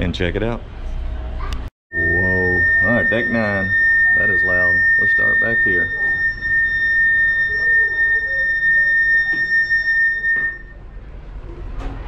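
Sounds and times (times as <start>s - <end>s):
high-pitched wind whistling: 2.0s - 10.8s.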